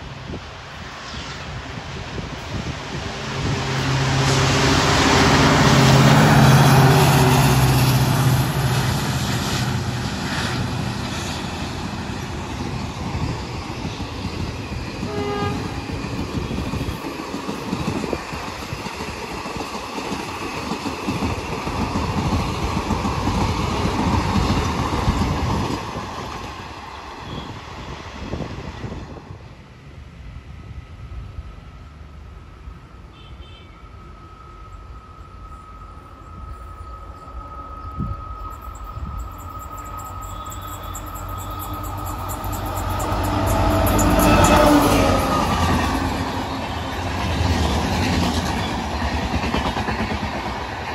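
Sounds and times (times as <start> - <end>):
diesel locomotive engine passing: 0.0 - 50.9
train coaches clattering over rails: 38.0 - 50.9.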